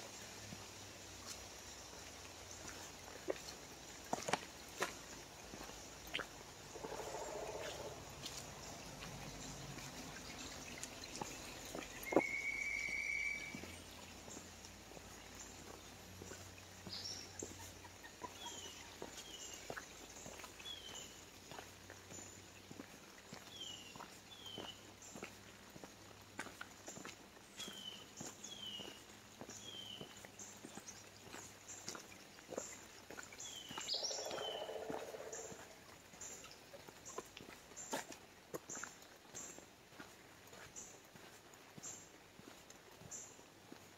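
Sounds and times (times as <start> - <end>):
footsteps on gravel trail: 0.4 - 43.9
bird chirping: 6.6 - 22.3, 27.5 - 36.6
descending bird whistles: 12.0 - 13.6.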